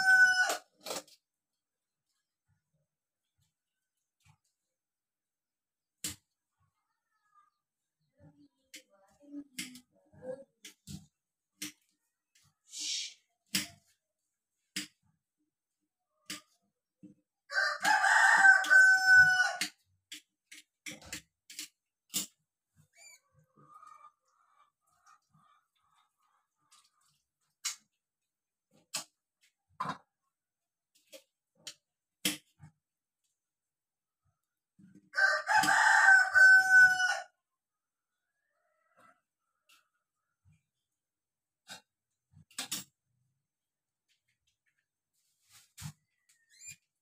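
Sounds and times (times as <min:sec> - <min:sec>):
rooster crowing: 0:00.0 - 0:00.6, 0:17.5 - 0:19.6, 0:35.2 - 0:37.4.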